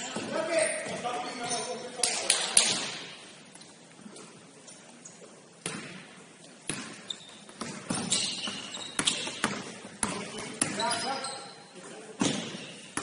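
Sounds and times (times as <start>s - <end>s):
basketball bouncing on court: 5.6s - 11.1s, 12.2s - 13.0s.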